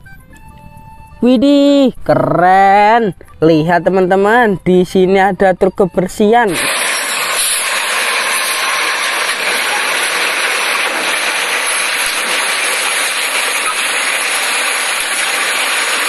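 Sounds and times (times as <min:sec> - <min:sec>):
garbage truck rushing hiss: 0:06.5 - 0:16.0.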